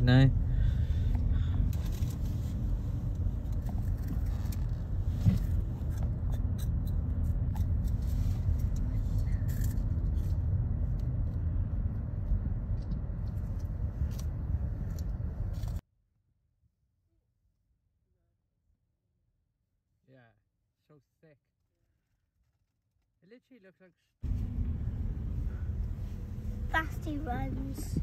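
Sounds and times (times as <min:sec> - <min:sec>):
car interior rumble: 0:00.0 - 0:15.8, 0:24.2 - 0:28.0.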